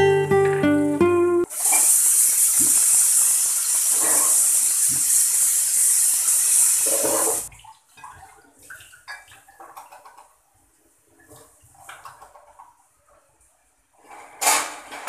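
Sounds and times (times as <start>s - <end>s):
tap water running into sink: 1.5s - 10.4s.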